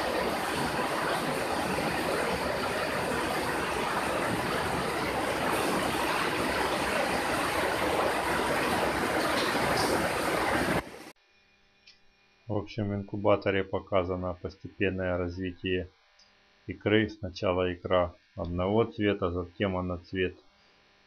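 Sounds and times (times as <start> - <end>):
running water rushing: 0.0 - 11.1.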